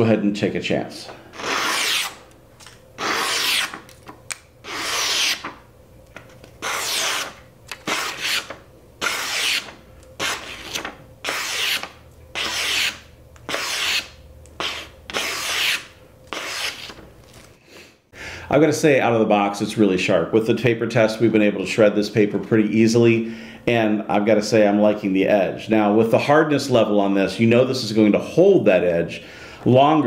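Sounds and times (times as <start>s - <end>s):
knife slicing paper: 3.0s - 3.9s, 4.6s - 5.6s, 6.6s - 17.0s.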